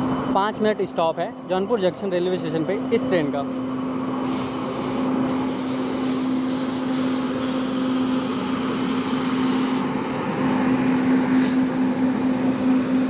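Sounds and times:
steady hum: 0:00.0 - 0:13.0
train pulling into station: 0:09.9 - 0:13.0.

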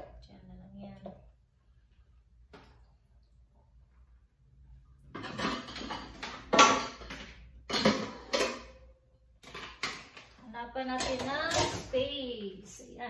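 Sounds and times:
dishes clattering in dishwasher racks: 0:05.2 - 0:08.8.

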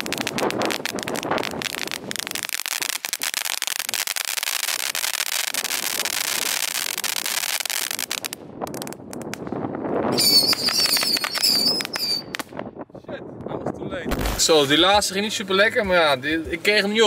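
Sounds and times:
fireworks crackling: 0:00.0 - 0:12.6, 0:14.1 - 0:14.9.

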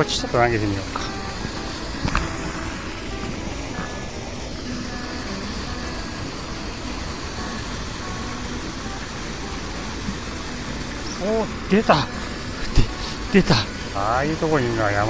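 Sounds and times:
water rushing over a weir: 0:00.0 - 0:15.0.

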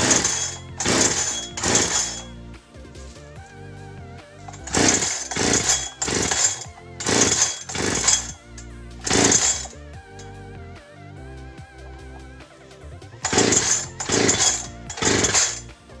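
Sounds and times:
chainsaw recoil starter pulls: 0:00.0 - 0:02.4, 0:04.5 - 0:10.2, 0:13.2 - 0:15.7
engine cranking over: 0:00.0 - 0:02.4, 0:04.4 - 0:10.3, 0:13.2 - 0:15.7
background music: 0:00.0 - 0:16.0.

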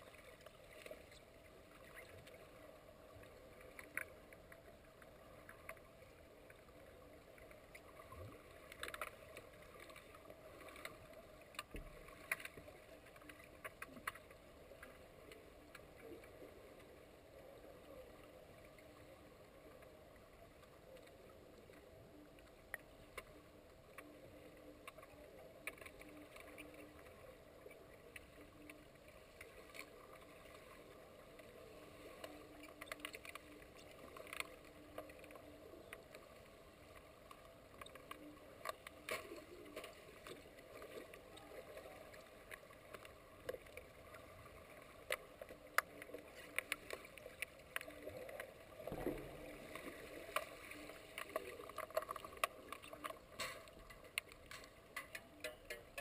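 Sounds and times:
muffled underwater hiss: 0:14.3 - 0:56.0.

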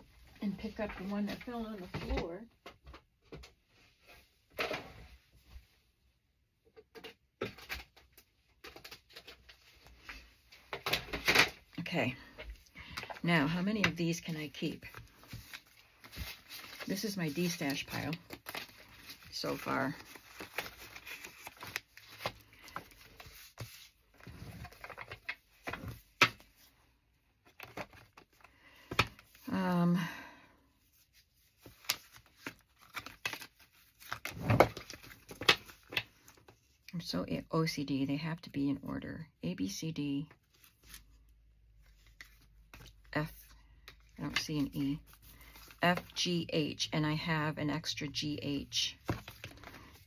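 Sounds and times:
cards rustling: 0:12.2 - 0:26.7, 0:27.4 - 0:29.6, 0:31.0 - 0:36.8, 0:40.4 - 0:46.2, 0:49.0 - 0:50.0.

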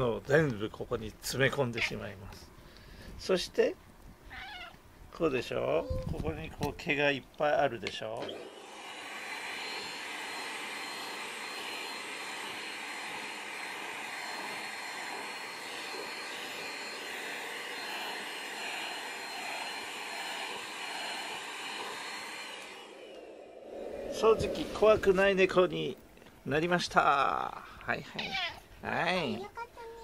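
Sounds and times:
vacuum cleaner motor whine: 0:07.9 - 0:25.6.

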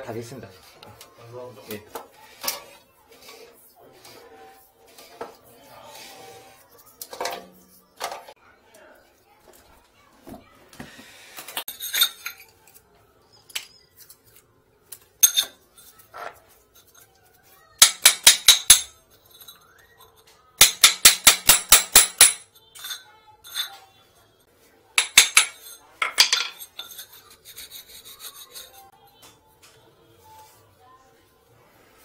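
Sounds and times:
metal tool chipping tile: 0:17.8 - 0:18.9, 0:20.6 - 0:22.4, 0:25.0 - 0:28.8.

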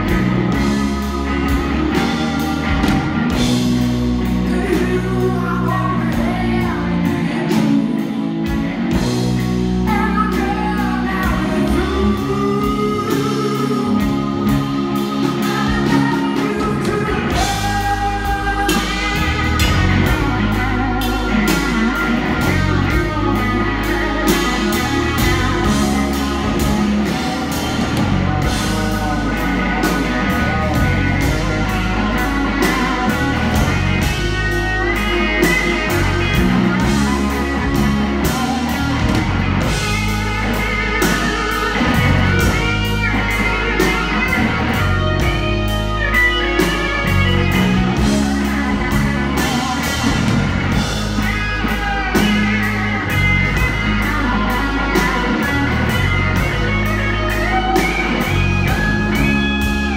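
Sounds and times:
bass low end: 0:00.0 - 0:59.9
electric guitar bending notes: 0:00.0 - 0:59.9.

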